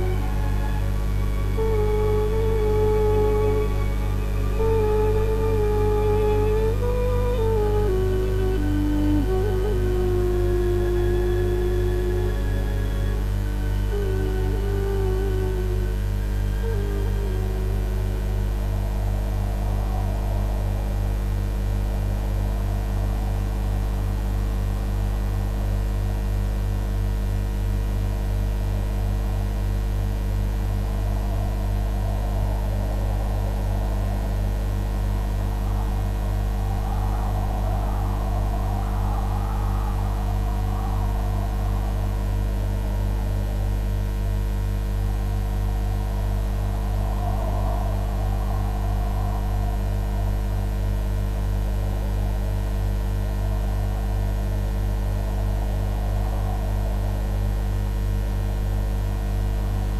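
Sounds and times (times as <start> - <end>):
background music: 0.0 - 6.9
electrical mains hum: 0.0 - 59.9
muffled rushing noise: 28.9 - 59.9.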